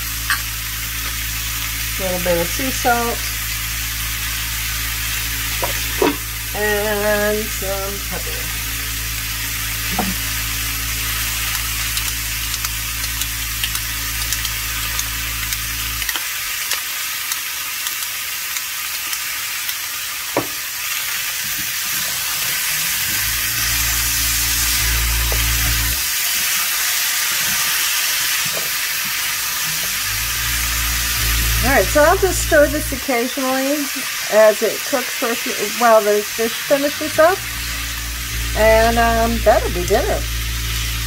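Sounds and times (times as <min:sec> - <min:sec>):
vegetables sizzling in oil: 0:00.0 - 0:41.0
spatula scraping pan: 0:05.6 - 0:06.3
low hum: 0:23.0 - 0:26.1, 0:30.0 - 0:33.0, 0:36.3 - 0:41.0.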